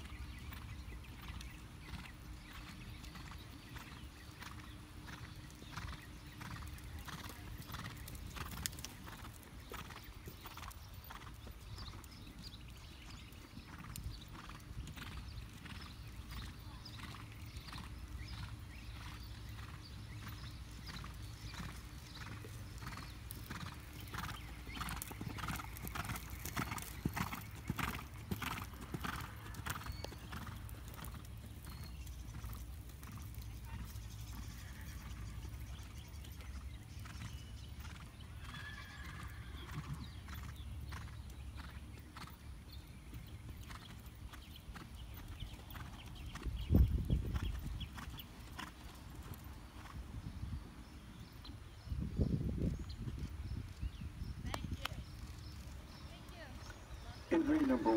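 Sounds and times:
horse hoofbeats on sand: 0.2 - 38.0.

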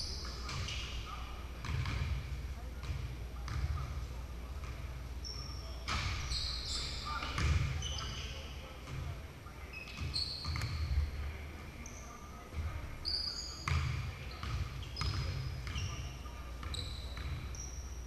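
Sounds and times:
sneaker squeaks: 0.0 - 2.2, 5.2 - 11.2, 11.8 - 18.0.

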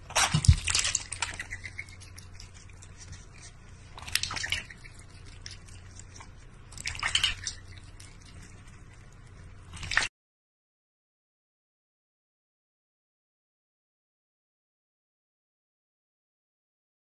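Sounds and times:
animals lapping water: 0.0 - 10.1
low steady hum: 0.0 - 10.1
water splashes: 4.0 - 5.5.

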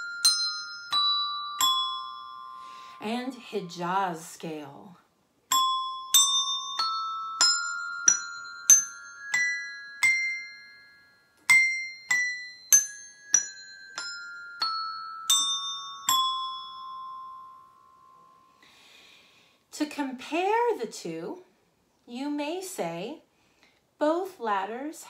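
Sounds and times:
desk bells ringing notes: 0.0 - 3.0, 5.5 - 18.6.

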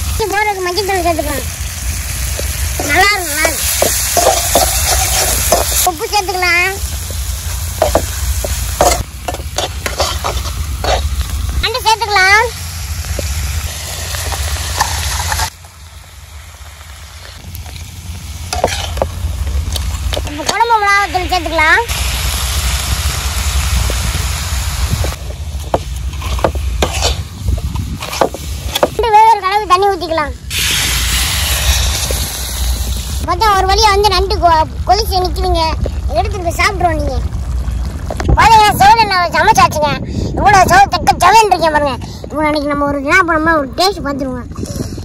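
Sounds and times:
vegetables sizzling in oil: 0.0 - 38.2
metal ladle scraping a pan: 3.5 - 5.8, 8.8 - 11.2, 13.9 - 15.5, 18.5 - 19.1, 26.1 - 27.3
wind rumble on microphone: 22.7 - 25.4, 26.1 - 28.7, 34.6 - 45.0.

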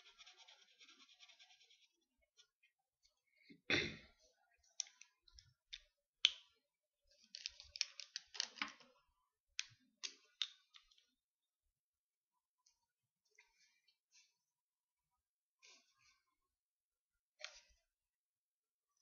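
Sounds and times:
plastic pen clicks: 7.4 - 8.8.

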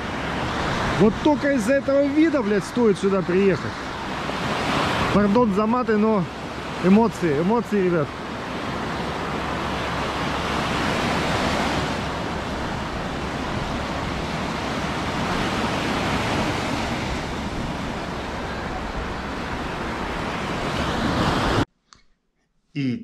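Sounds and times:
surf washing onto beach: 0.0 - 21.7
wind rumbling on microphone: 8.1 - 21.7.

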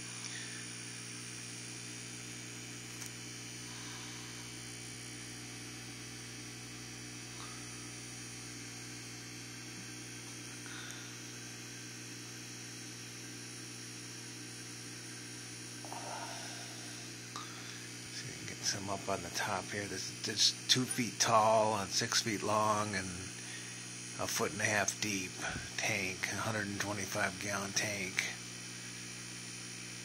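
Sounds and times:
low electrical hum: 0.0 - 30.0.

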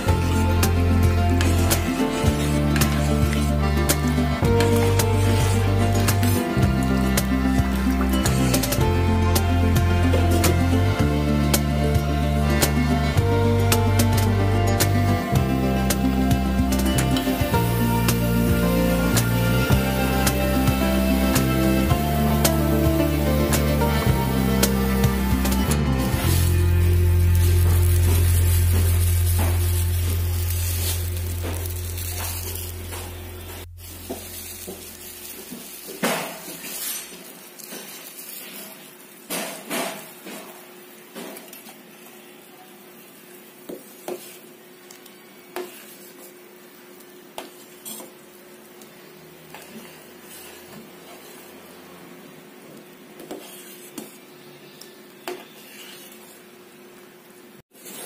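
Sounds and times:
music: 0.0 - 34.8.

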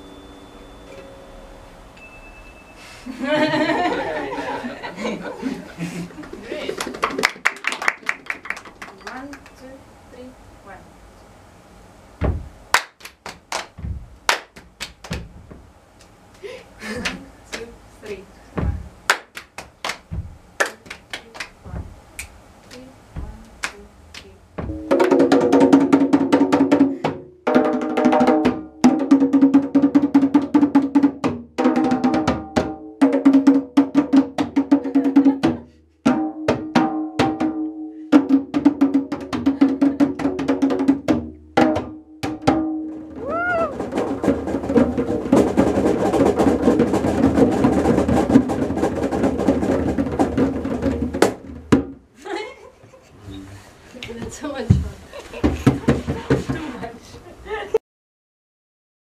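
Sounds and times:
hand claps: 6.2 - 9.6, 12.7 - 15.3, 16.0 - 17.7, 19.1 - 22.9, 23.5 - 24.3
djembes drumming: 12.2 - 12.8, 13.6 - 15.7, 18.6 - 22.1, 23.2 - 23.7, 24.6 - 52.0, 54.2 - 57.0.

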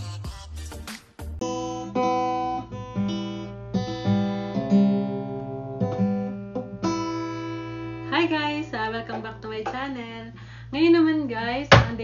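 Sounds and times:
acoustic guitar strumming and plucking: 1.4 - 10.0.

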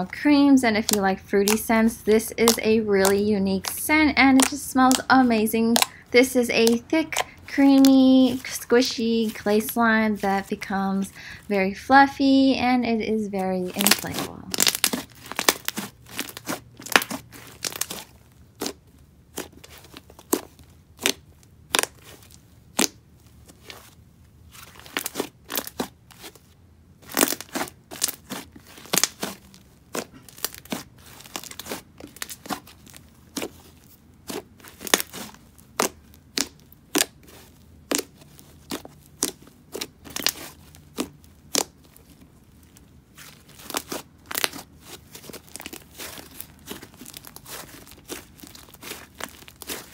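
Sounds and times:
slime squished by hand: 13.7 - 23.9, 24.6 - 49.9.

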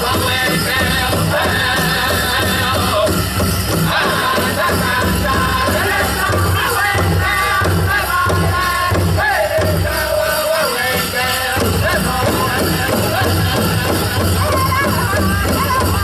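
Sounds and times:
large drum beating: 0.0 - 10.0
high-pitched group singing: 0.0 - 16.0.

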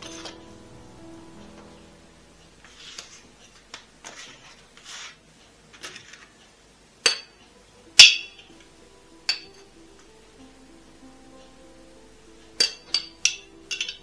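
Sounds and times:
rustling handling noise: 1.3 - 6.5
dishes and utensils clinking: 12.6 - 14.0.

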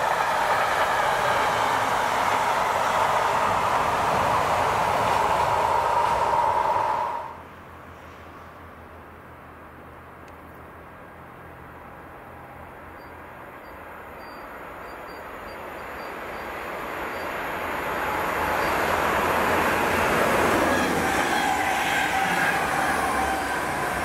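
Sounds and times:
train whine falling in pitch: 0.0 - 7.4, 18.0 - 24.0
electric train passing at speed: 0.0 - 9.4, 11.0 - 24.0.

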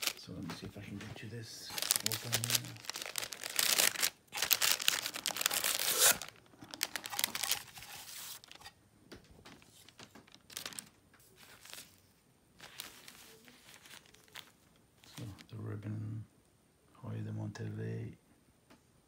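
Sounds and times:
tissue paper rustling: 0.0 - 0.2, 1.6 - 8.7, 9.5 - 15.4.

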